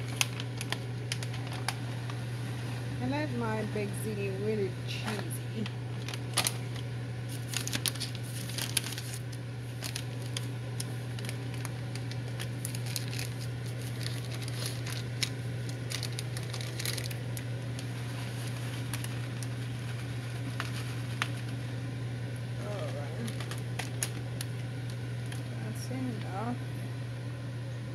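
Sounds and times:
sauce crackling and popping: 0.0 - 2.3, 5.6 - 22.6, 23.3 - 25.6
steady low hum: 0.0 - 27.9.

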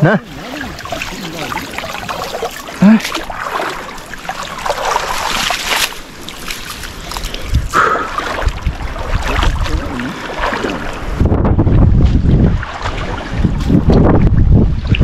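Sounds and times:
muddy water sloshing: 0.0 - 15.0
low rumbling on microphone: 7.0 - 15.0.

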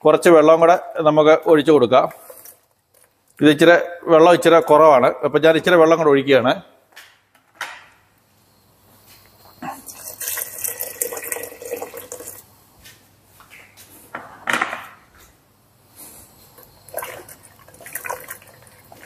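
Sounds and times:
water pouring into a pot: 9.9 - 12.4, 16.7 - 19.0.

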